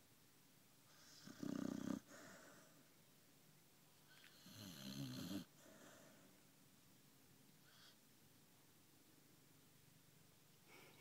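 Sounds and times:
dog snoring: 0.9 - 2.7, 4.1 - 6.1.

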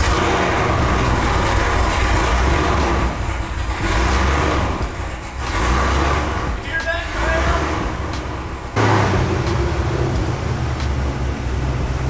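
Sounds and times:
car engine rumbling: 0.0 - 12.0.

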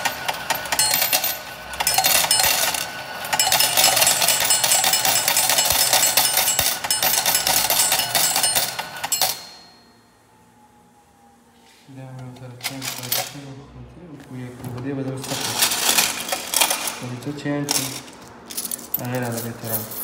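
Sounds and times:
coins clattering into metal tray: 0.0 - 9.6, 12.6 - 13.4, 15.2 - 20.0.

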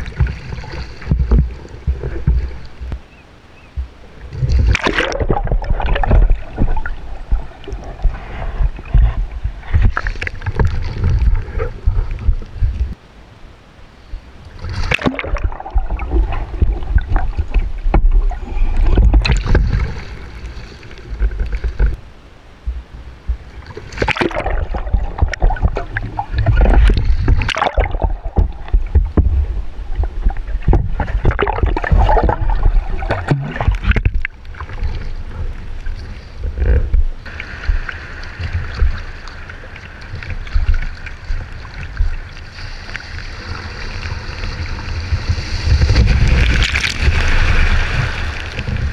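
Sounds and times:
muffled underwater rumbling: 0.0 - 48.9
water rushing and sloshing: 0.0 - 48.9
wind: 0.0 - 48.9.

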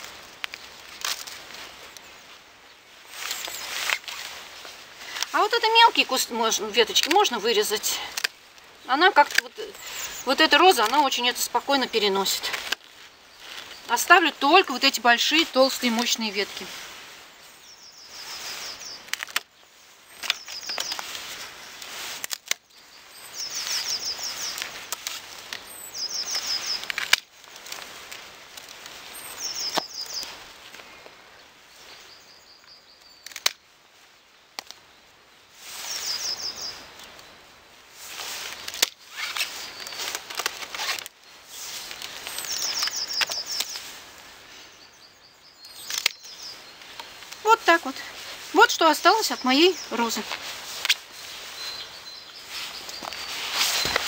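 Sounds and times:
branches rustling: 0.0 - 54.0
secateurs snipping: 3.2 - 4.3, 45.8 - 47.8, 52.9 - 54.0
bird chirping: 17.4 - 21.9, 22.6 - 25.0, 25.6 - 27.0, 29.0 - 30.4, 35.8 - 37.2, 40.8 - 43.9, 44.5 - 54.0.

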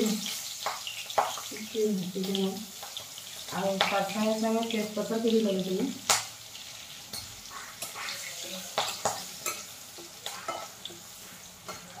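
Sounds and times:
oil sizzling: 0.0 - 12.0
metal spatula scraping pan: 7.1 - 12.0.

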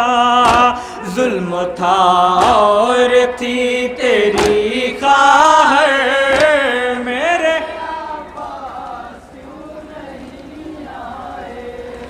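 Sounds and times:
faint humming voices: 0.0 - 12.0
men chanting: 0.0 - 12.0
hand slap on chest: 4.4 - 4.6.

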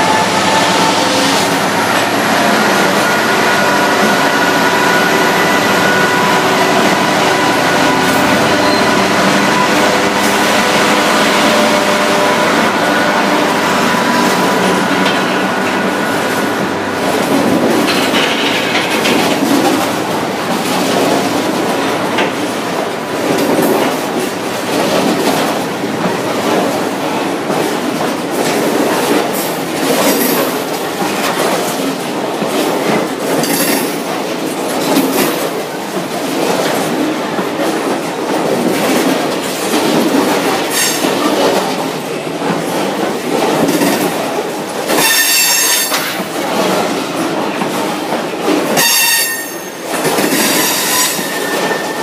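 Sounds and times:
high-pitched squeal: 0.0 - 17.1
freight train rumble: 0.0 - 52.0
wheels clattering over rail joints: 0.0 - 52.0.

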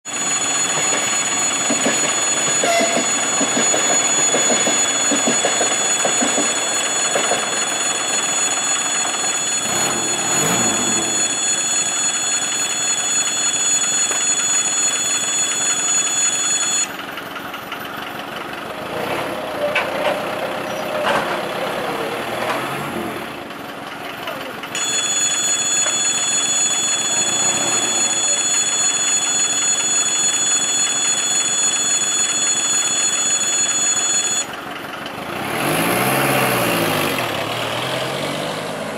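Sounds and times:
wavering tone: 0.1 - 12.0
level crossing warning bell: 0.1 - 22.2, 24.1 - 35.0.

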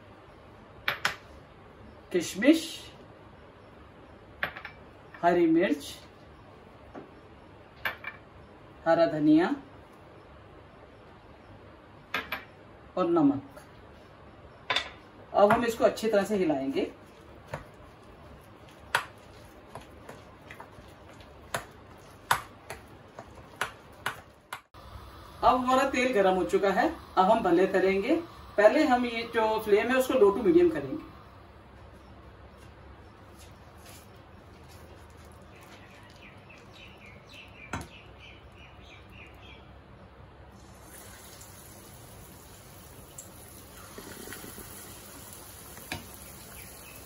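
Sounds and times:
low background noise: 0.0 - 47.0
bird chirping: 35.4 - 39.8, 46.1 - 47.0.

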